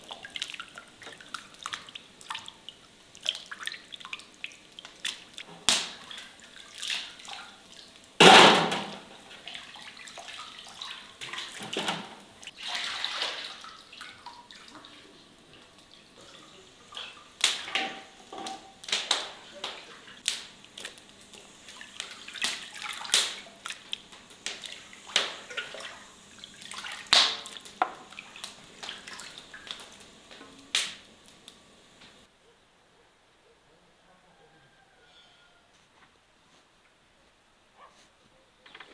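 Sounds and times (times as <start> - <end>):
water splashing in metal basin: 0.0 - 15.1, 15.8 - 31.0
running water: 0.0 - 32.3.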